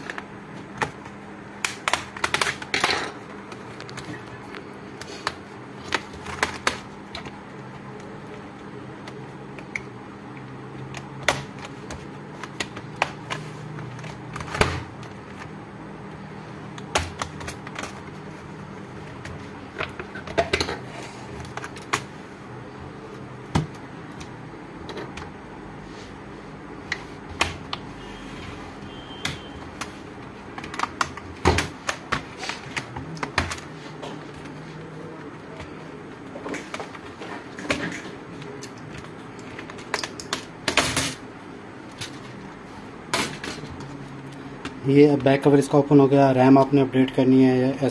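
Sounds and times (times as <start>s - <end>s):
plastic laptop cover clicks and snaps: 1.6s - 2.8s.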